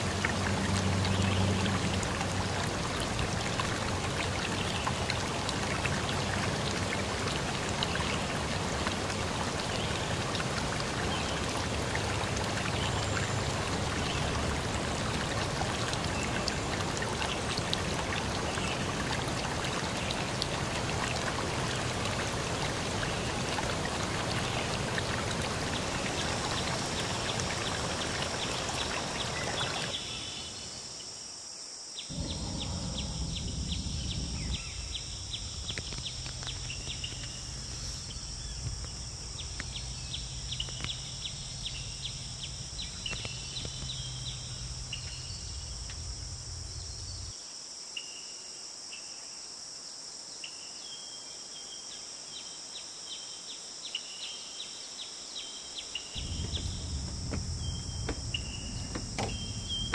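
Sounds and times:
insects chirping trills: 0:00.0 - 0:59.9
low rumble: 0:32.1 - 0:40.8, 0:56.2 - 0:59.9.

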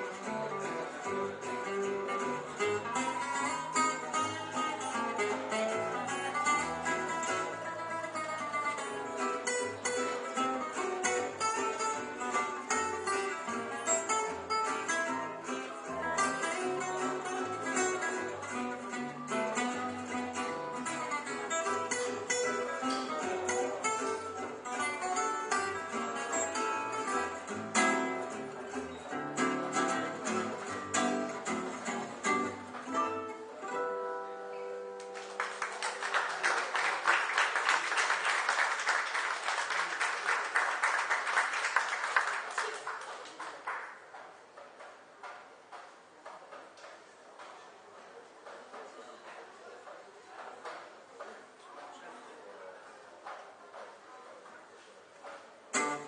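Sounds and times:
jazz band with guitars and bass: 0:00.0 - 0:36.2, 0:55.7 - 0:56.0
audience applause: 0:02.8 - 0:06.7, 0:35.0 - 0:44.1.

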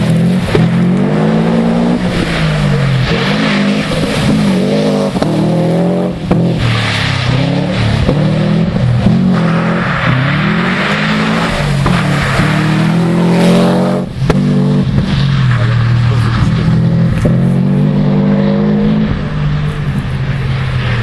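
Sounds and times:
car engine revving hard: 0:00.0 - 0:21.0.

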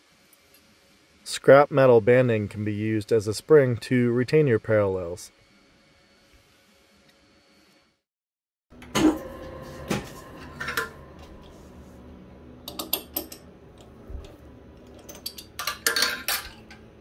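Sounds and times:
low steady hum: 0:08.8 - 0:17.0.

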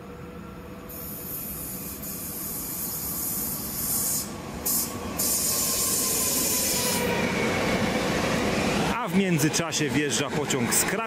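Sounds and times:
train hiss: 0:00.8 - 0:08.9.

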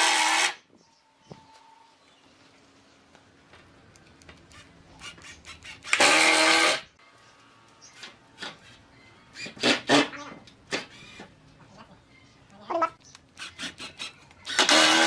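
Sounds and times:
power tool burst: 0:13.4 - 0:15.0.

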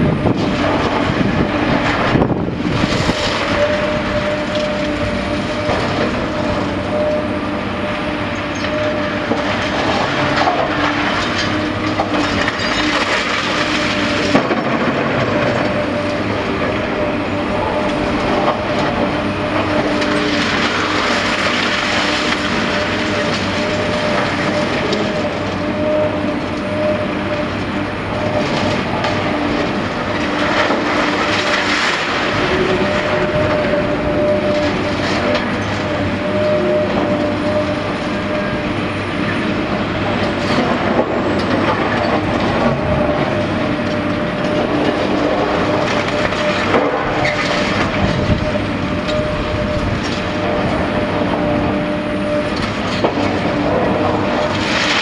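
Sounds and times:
excavator engine and hydraulics: 0:00.0 - 0:55.0
falling rubble clattering: 0:10.0 - 0:15.6.

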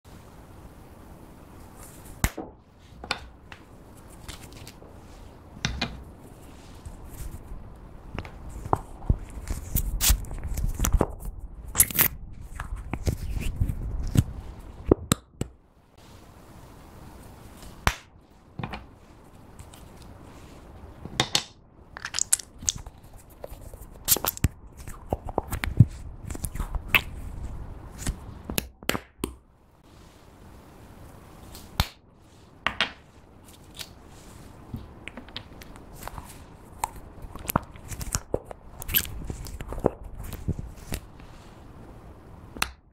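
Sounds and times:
plastic tubes clicking and crackling: 0:21.2 - 0:27.2.

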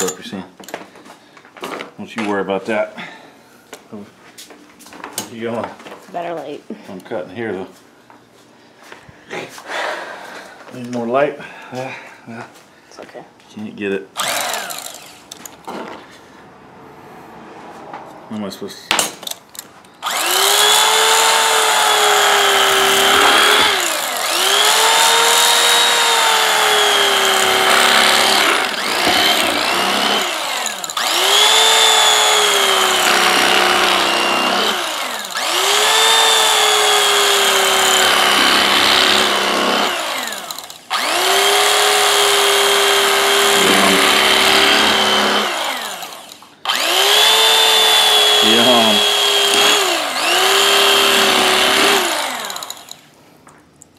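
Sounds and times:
electric carving knife whine: 0:14.2 - 0:15.4, 0:20.0 - 0:53.0.

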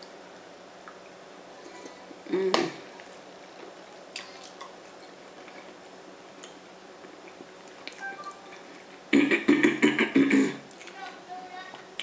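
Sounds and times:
person humming mm: 0:01.8 - 0:02.8.

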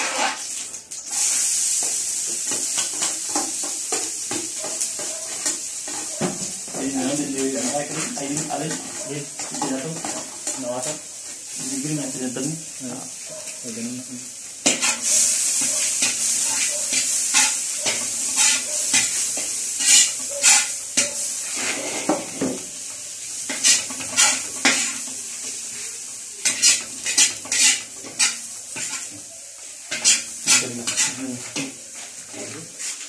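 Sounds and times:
metal spatula scraping a wok: 0:00.0 - 0:00.5, 0:01.1 - 0:11.8, 0:14.6 - 0:33.0
food sizzling in hot oil: 0:00.0 - 0:33.0.

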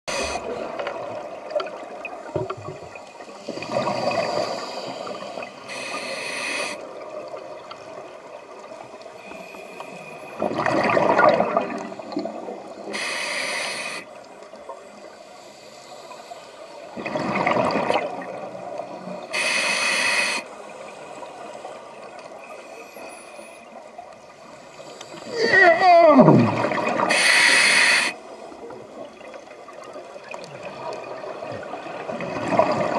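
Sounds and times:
regulator inhale hiss: 0:00.1 - 0:00.6, 0:03.3 - 0:06.9, 0:09.2 - 0:10.4, 0:12.9 - 0:14.2, 0:15.1 - 0:16.9, 0:19.2 - 0:21.5, 0:22.4 - 0:23.8, 0:27.1 - 0:28.5
exhaled bubbles burbling: 0:10.4 - 0:12.6, 0:17.0 - 0:18.5, 0:25.8 - 0:27.1.

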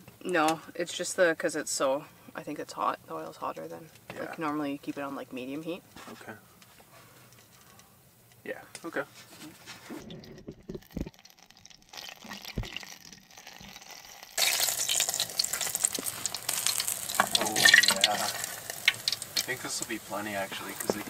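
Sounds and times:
dough frying in hot oil: 0:09.6 - 0:21.0.

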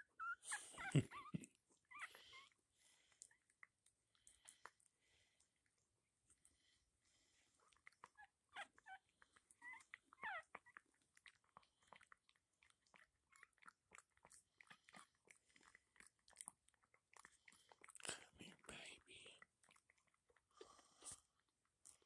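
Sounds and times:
puppy squeaking: 0:00.0 - 0:02.5, 0:08.1 - 0:09.0, 0:09.6 - 0:10.8.

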